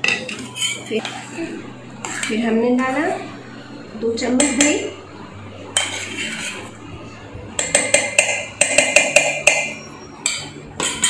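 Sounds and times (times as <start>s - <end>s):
spoon scraping steel bowl: 0.1s - 1.4s, 2.0s - 3.2s, 5.8s - 6.7s, 7.6s - 11.0s.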